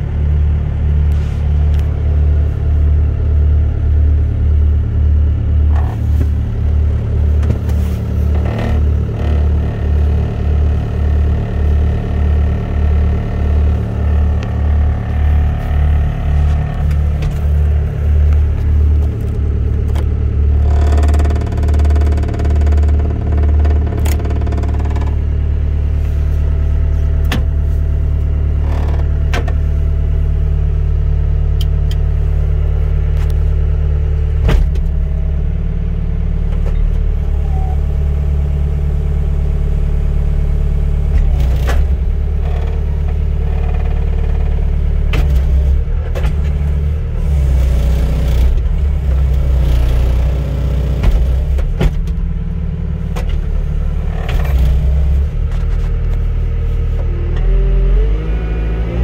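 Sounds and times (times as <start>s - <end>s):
diesel engine running: 0.0s - 59.0s
hydraulic arm clunks and knocks: 5.7s - 10.1s, 13.0s - 25.3s, 27.2s - 27.8s, 34.3s - 35.7s, 41.0s - 56.3s.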